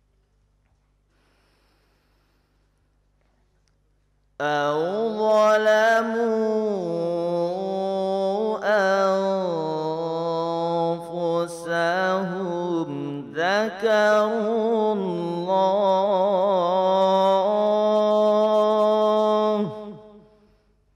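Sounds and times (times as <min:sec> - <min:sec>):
person breathing: 0:01.1 - 0:02.9
solo voice chanting: 0:04.4 - 0:20.6.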